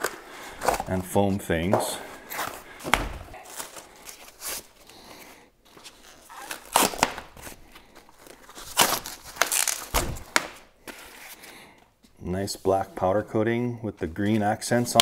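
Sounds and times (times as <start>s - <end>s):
packaging rustling and crinkling: 2.2s - 11.7s.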